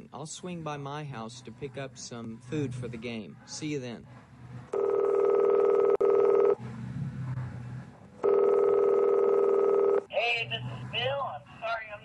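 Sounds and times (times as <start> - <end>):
telephone ringing: 4.7 - 6.6, 8.2 - 10.1.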